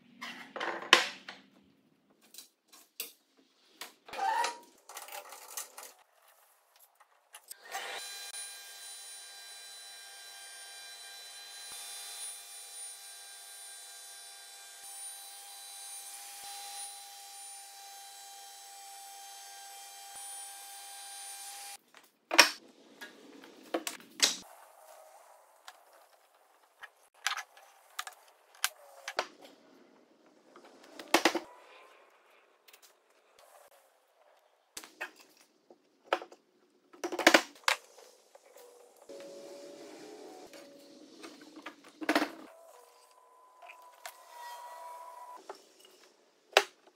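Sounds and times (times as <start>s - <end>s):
spindle moulder whining and cutting: 42.5s - 45.4s.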